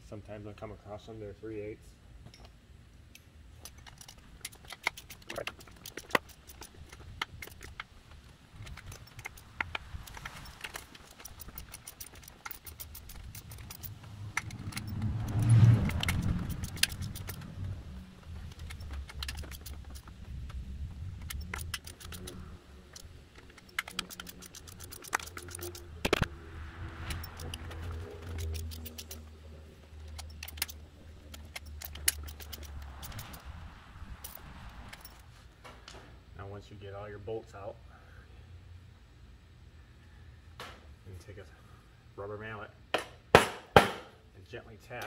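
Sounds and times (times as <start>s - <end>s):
ratchet wrench clicking: 3.6s - 26.3s, 26.9s - 29.3s, 30.0s - 33.5s, 34.2s - 35.2s.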